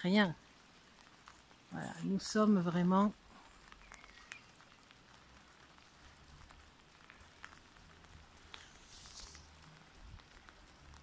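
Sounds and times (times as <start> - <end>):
faint rain: 0.0 - 11.0.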